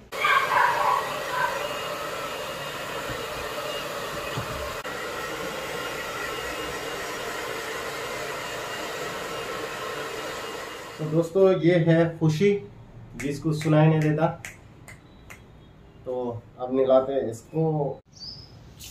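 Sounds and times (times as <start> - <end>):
hair dryer blowing air: 0.0 - 11.4.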